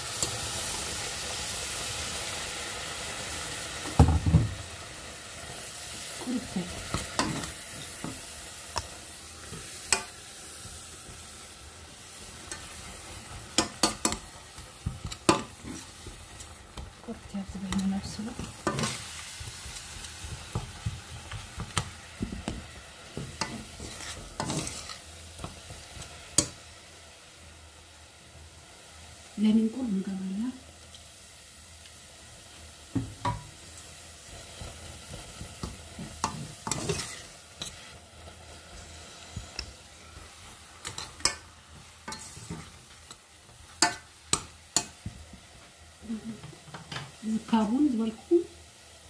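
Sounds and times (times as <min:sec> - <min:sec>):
sizzle from hot pan: 0:00.0 - 0:49.0
spoon mashing beans in pot: 0:12.3 - 0:26.6, 0:34.5 - 0:38.0, 0:39.2 - 0:45.5
metal spoon scraping a pot: 0:23.4 - 0:25.0, 0:36.2 - 0:37.9.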